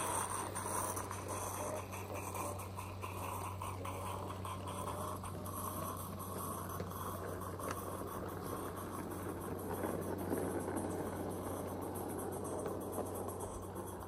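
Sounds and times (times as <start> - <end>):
wheels rumbling on rail: 0.0 - 14.0.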